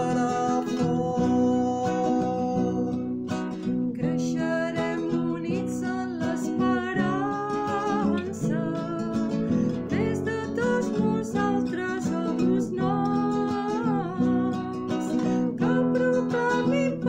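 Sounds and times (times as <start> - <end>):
person singing a hymn: 0.0 - 3.0, 4.0 - 17.0
strummed acoustic guitar: 0.0 - 17.0.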